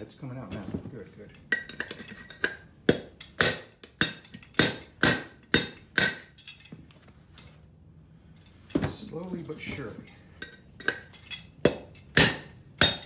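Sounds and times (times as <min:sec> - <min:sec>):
hammer striking metal: 0:01.6 - 0:06.5, 0:10.4 - 0:13.0.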